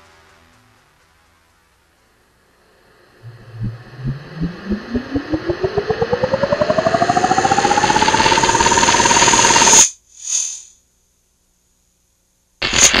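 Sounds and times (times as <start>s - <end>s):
pulsing electronic whine: 2.6s - 10.5s
short hiss: 9.8s - 10.8s.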